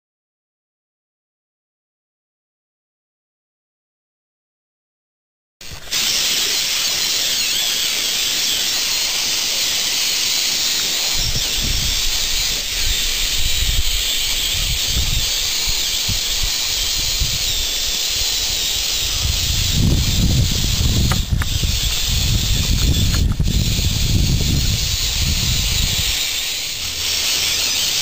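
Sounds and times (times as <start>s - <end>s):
toy motors whining: 5.7s - 28.0s.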